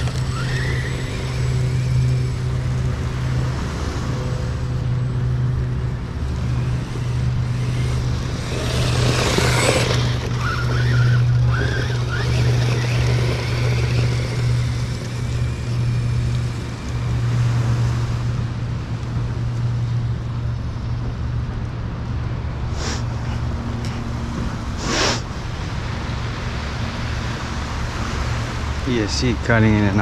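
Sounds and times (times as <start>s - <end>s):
electric toy truck motor whine: 0.0s - 17.9s.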